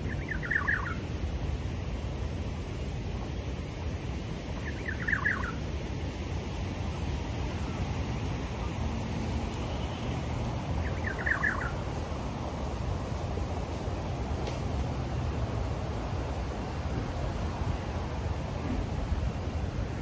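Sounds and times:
bird calling: 0:00.0 - 0:01.1, 0:04.6 - 0:05.7, 0:10.8 - 0:11.9
high hiss: 0:00.0 - 0:20.0.

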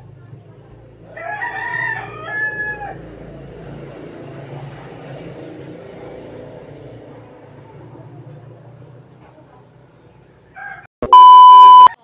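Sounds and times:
rooster crowing: 0:01.1 - 0:03.1, 0:10.5 - 0:10.9.

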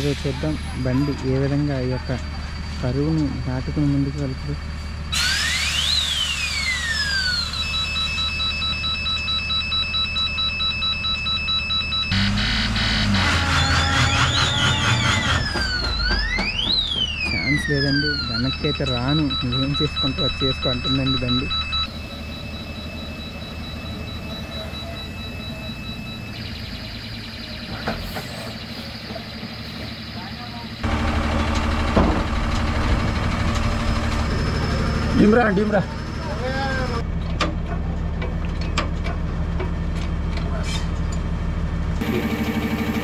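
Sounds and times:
diesel truck engine humming: 0:00.0 - 0:05.2, 0:11.7 - 0:40.4
electronic siren tones: 0:00.0 - 0:37.0, 0:42.0 - 0:43.0
pulsing high beeps: 0:00.5 - 0:31.0, 0:32.7 - 0:37.0.

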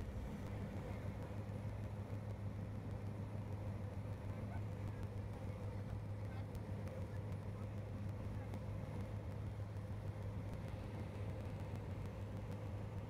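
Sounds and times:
aircraft cabin drone: 0:00.0 - 0:13.0.

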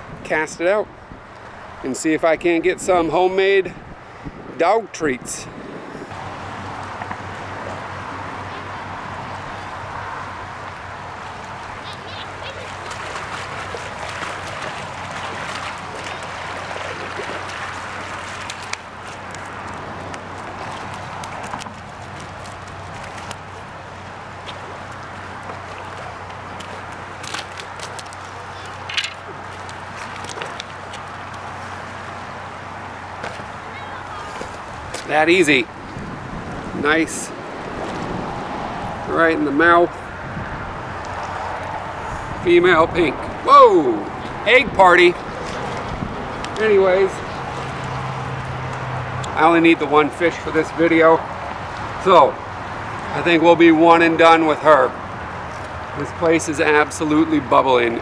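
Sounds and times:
wind rumbling on microphone: 0:00.0 - 0:49.3
creek rushing: 0:03.0 - 0:58.0
fast-flowing stream: 0:05.6 - 0:39.1
fish splashing: 0:06.2 - 0:35.1.

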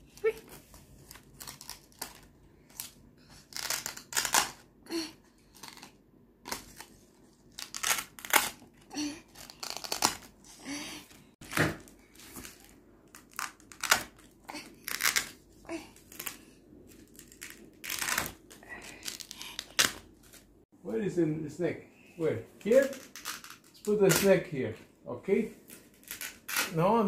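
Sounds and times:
laminated cards ripping and tapping: 0:00.5 - 0:04.6, 0:05.5 - 0:10.3, 0:11.4 - 0:15.4.

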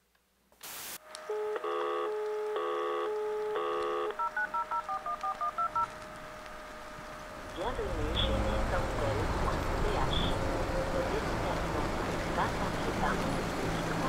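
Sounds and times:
steady telephone tone: 0:01.3 - 0:05.9
telephone line static: 0:01.3 - 0:06.0
touch-tone dialing beeps: 0:03.6 - 0:05.9.

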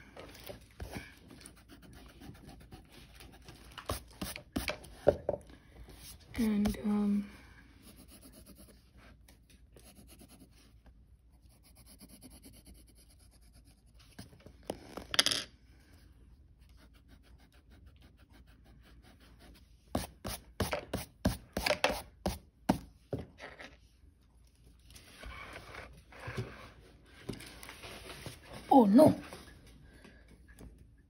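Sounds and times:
pencil scratching on paper: 0:00.8 - 0:05.0, 0:07.8 - 0:09.0, 0:09.8 - 0:10.8, 0:11.4 - 0:14.4, 0:16.6 - 0:22.4.

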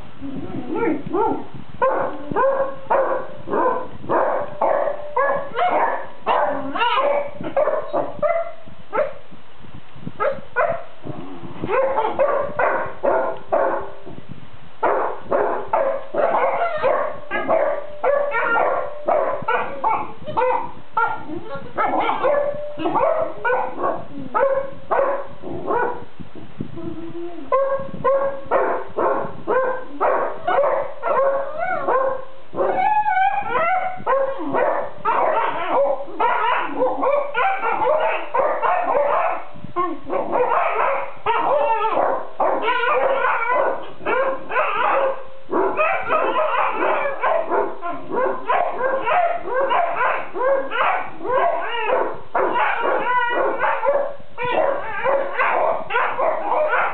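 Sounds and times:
dogs whining and muttering: 0:32.6 - 0:56.9.

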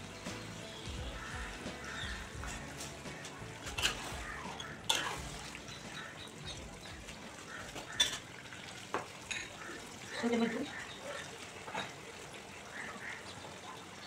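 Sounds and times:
spatula stirring: 0:01.6 - 0:08.2.

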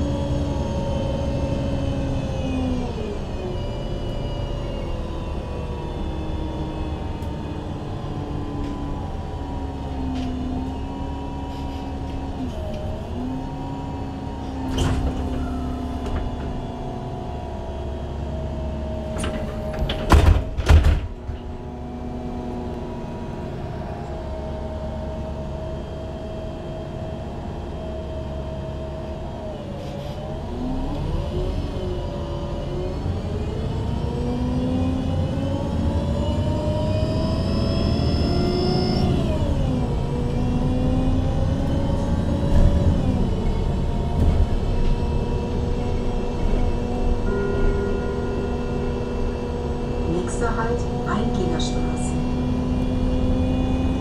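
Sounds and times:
bus engine revving pulling away: 0:00.0 - 0:20.1, 0:21.4 - 0:54.0
bus engine idling: 0:00.0 - 0:33.9, 0:39.0 - 0:53.0
bus doors closing thumps: 0:14.5 - 0:16.7, 0:19.0 - 0:21.5.

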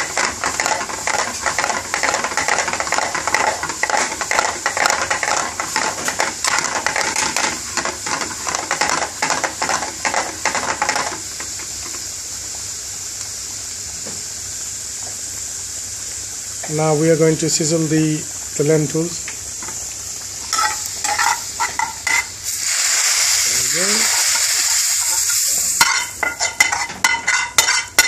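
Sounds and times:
garlic sizzling in oil: 0:00.0 - 0:28.0.

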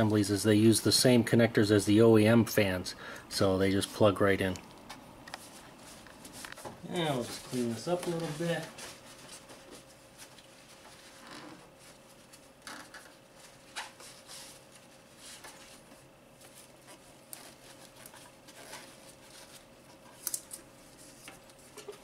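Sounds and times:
faint steady hum: 0:00.0 - 0:22.0
gloved hands rustling and scraping: 0:05.3 - 0:22.0.

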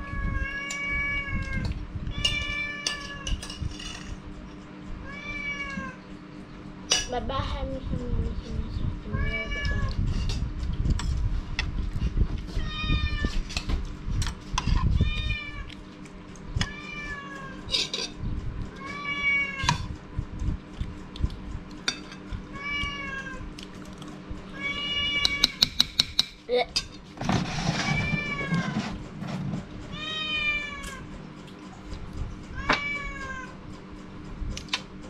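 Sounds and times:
cat meowing: 0:05.0 - 0:06.0, 0:18.8 - 0:19.8, 0:22.5 - 0:23.5, 0:24.5 - 0:25.6, 0:29.9 - 0:31.1, 0:32.5 - 0:33.6
metal spoon clinking on plate: 0:17.7 - 0:18.2, 0:25.2 - 0:27.0.

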